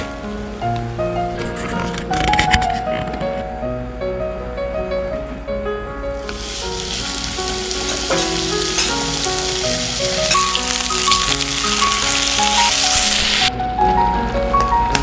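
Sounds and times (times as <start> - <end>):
steak sizzling in a frying pan: 6.2 - 13.5.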